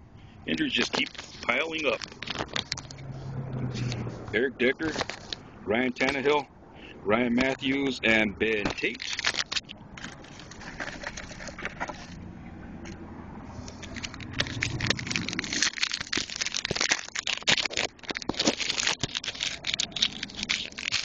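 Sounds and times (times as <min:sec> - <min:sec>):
foil wrapper crinkling: 0:00.5 - 0:03.2, 0:04.8 - 0:05.4, 0:08.6 - 0:12.2, 0:13.5 - 0:21.0
cards rustling: 0:00.5 - 0:05.4, 0:07.4 - 0:12.2, 0:13.5 - 0:21.0.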